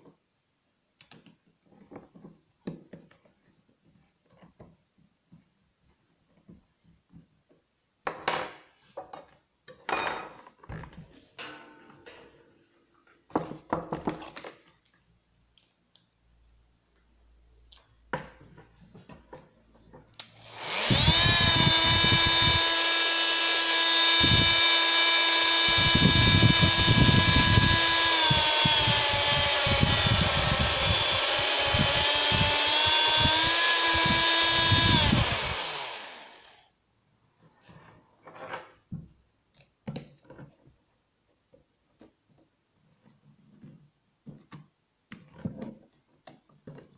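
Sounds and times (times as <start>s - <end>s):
multi-tool high whine and buzz: 20.2s - 36.7s.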